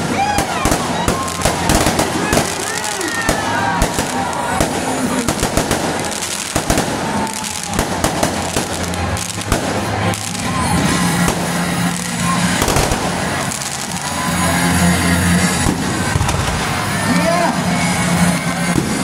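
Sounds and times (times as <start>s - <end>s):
fireworks bangs and pops: 0.0s - 17.2s, 17.8s - 19.0s.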